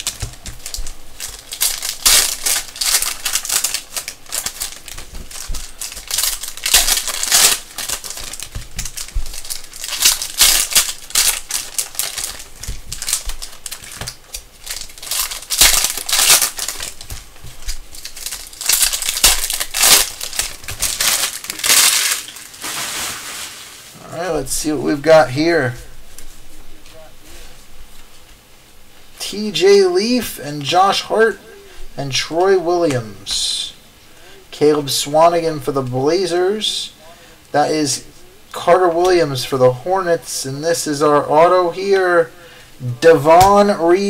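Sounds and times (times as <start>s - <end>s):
foil wrappers tearing and crinkling: 0.0s - 24.1s.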